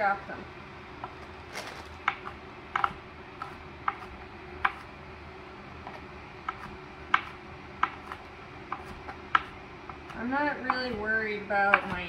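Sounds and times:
knife chopping on cutting board: 0:01.9 - 0:05.0, 0:05.8 - 0:12.0.

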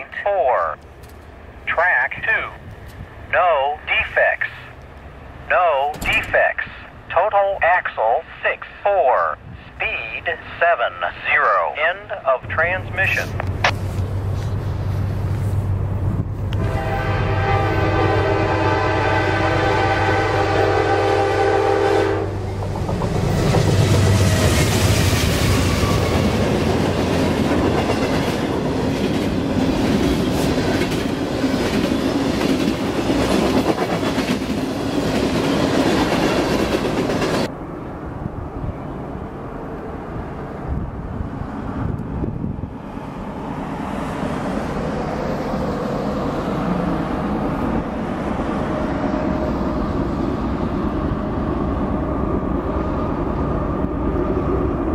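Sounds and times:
freight train passing: 0:00.0 - 0:54.9
train horn: 0:16.6 - 0:22.4
wheels clacking on rails: 0:22.4 - 0:37.5.

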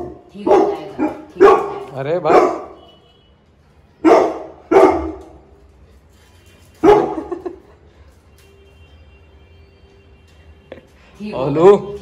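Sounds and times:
dog barking sharply: 0:00.5 - 0:02.8, 0:04.0 - 0:05.3.

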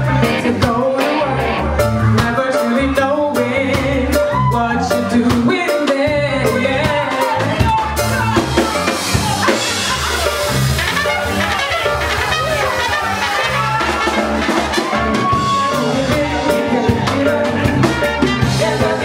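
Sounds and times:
pulsing bass line: 0:00.0 - 0:02.4, 0:06.1 - 0:19.0
reggae band playing: 0:00.0 - 0:19.0.

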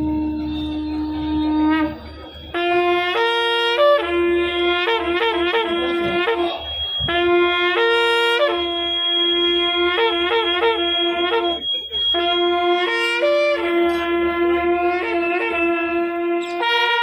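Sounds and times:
long horn blasts: 0:00.0 - 0:17.0.

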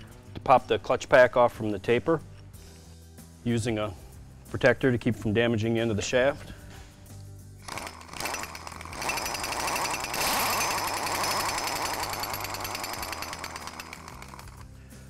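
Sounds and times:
pneumatic impact wrench hammering: 0:07.6 - 0:14.7.

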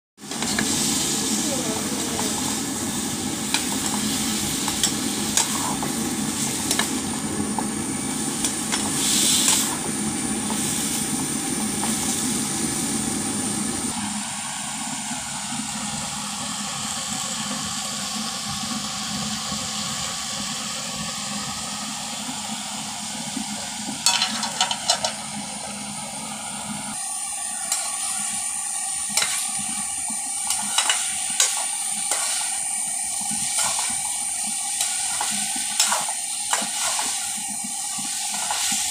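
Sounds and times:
vegetables sizzling in a pan: 0:00.2 - 0:38.9
metal spatula scraping a pan: 0:29.1 - 0:29.6, 0:30.5 - 0:32.6.

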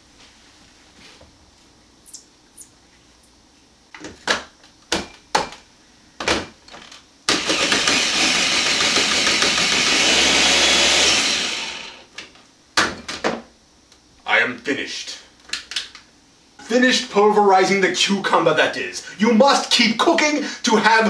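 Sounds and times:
food processor motor chopping: 0:07.3 - 0:12.1.

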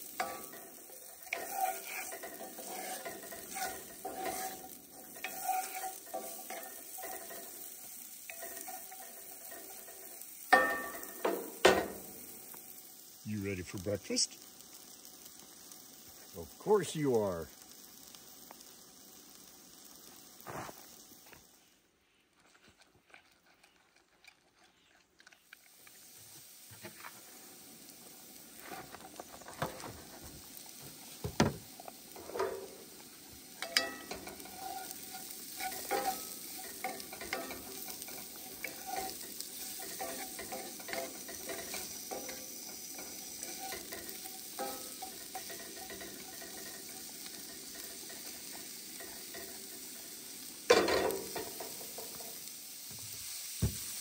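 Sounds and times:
vegetables sizzling in a pan: 0:00.0 - 0:21.9, 0:25.4 - 0:54.0
wooden spatula scraping a pan: 0:00.1 - 0:12.0, 0:33.6 - 0:50.1.

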